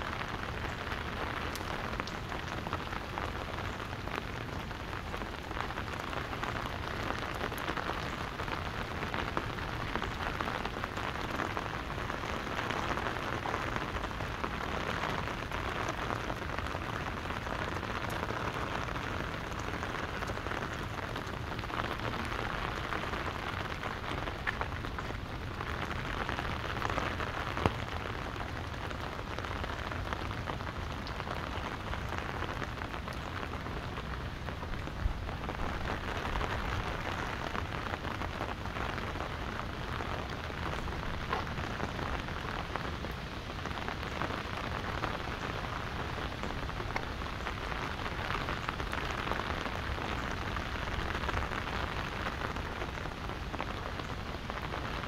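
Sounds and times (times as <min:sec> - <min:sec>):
rain pattering on umbrella: 0:00.0 - 0:55.0.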